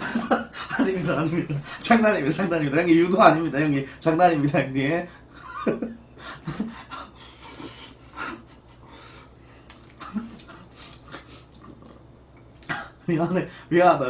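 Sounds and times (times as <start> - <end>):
man chuckling: 5.4 - 9.0, 9.9 - 11.4
chewing and slurping: 9.2 - 12.7.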